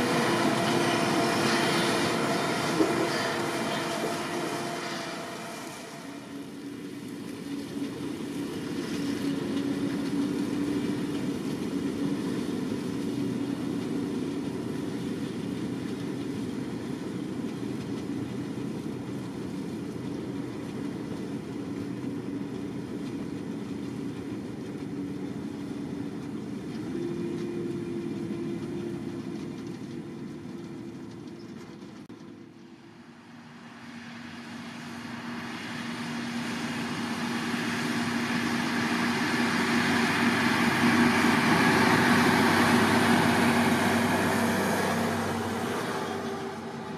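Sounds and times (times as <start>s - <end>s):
harvester engines and conveyors droning: 0.0s - 46.9s.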